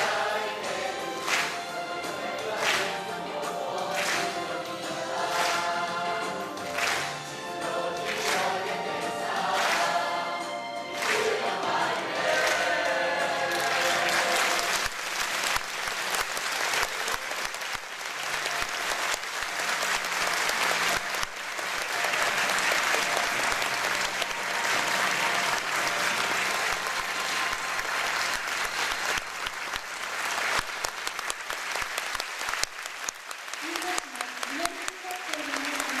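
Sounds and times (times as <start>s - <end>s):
audience applauding: 0.0s - 3.2s, 3.8s - 10.3s, 10.9s - 36.0s
choir singing: 0.0s - 14.9s, 22.0s - 29.0s.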